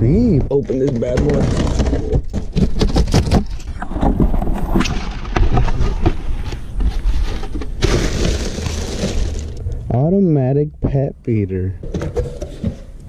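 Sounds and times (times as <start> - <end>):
plastic packing crinkling: 2.4 - 9.6
cardboard box being ripped open: 7.8 - 9.6.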